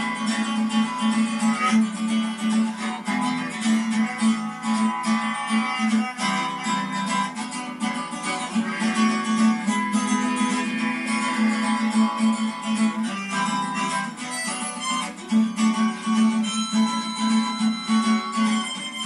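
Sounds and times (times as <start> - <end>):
acoustic guitar strumming: 0.0 - 19.0
harmonica playing held notes: 0.0 - 19.0.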